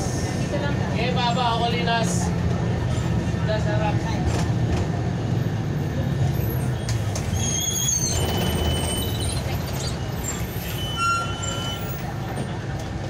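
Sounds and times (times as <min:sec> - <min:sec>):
vehicle engine rumbling: 0:00.0 - 0:13.0.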